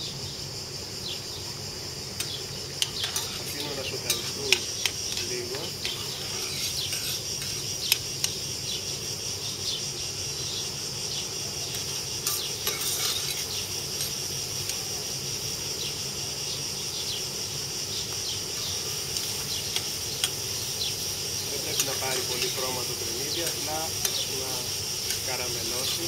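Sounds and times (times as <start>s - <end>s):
cicadas droning: 0.0s - 26.0s
oil sizzling: 1.3s - 26.0s
metal spoon clicking against pan: 25.1s - 25.3s.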